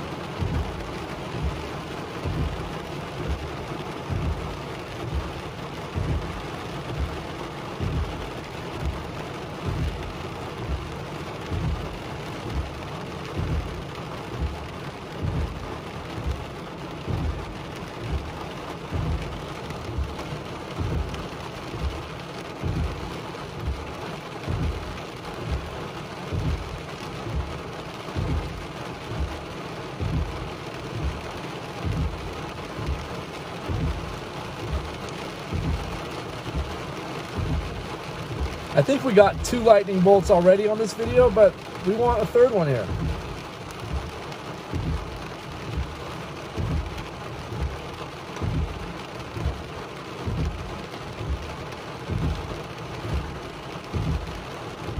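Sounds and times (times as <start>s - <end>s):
rain on car roof: 0.0s - 54.9s
low thump: 46.6s - 46.9s, 48.4s - 48.8s.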